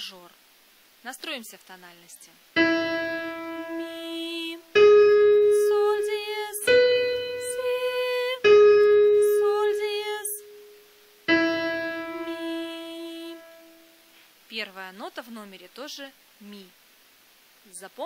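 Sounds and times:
person singing pitches: 2.6 - 10.7, 11.3 - 13.8
piano notes: 2.6 - 14.0.

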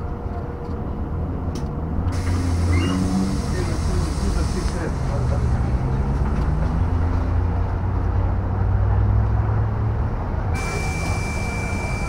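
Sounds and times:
low rumble of bus tyres: 0.0 - 9.1
steady high-pitched tone: 10.6 - 12.0.

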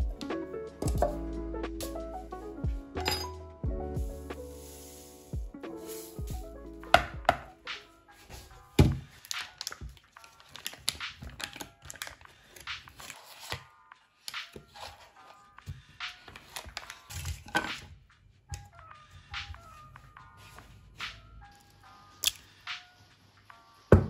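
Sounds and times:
background music: 0.0 - 24.0
foil wrapper crinkling and tearing: 9.1 - 13.6.

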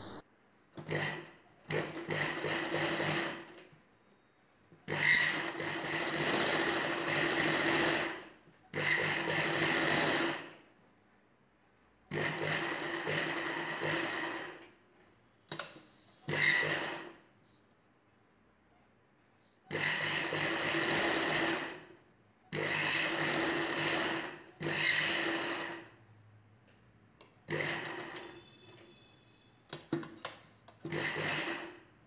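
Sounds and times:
sewing machine running: 0.8 - 3.6, 4.9 - 10.6, 12.1 - 14.7, 16.3 - 17.2, 19.7 - 21.9, 22.5 - 26.0, 27.4 - 28.5, 30.8 - 31.8.

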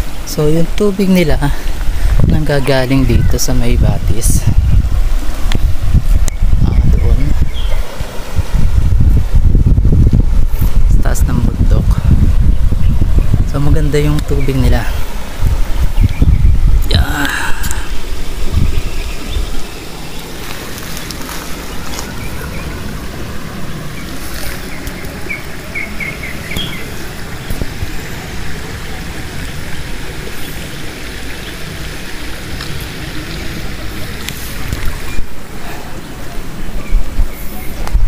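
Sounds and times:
stream running over rocks: 0.0 - 38.0
bird chirping: 6.3 - 7.8, 18.6 - 23.0, 23.8 - 28.2.

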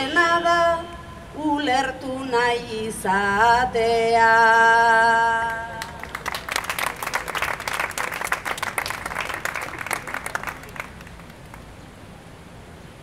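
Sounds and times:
audience applauding: 5.8 - 11.7.

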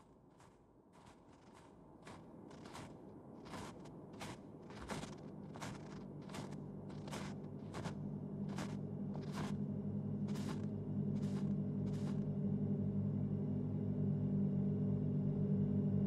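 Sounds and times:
boots crunching through snow: 0.0 - 9.6, 10.2 - 12.2
low steady drone: 4.0 - 16.0.

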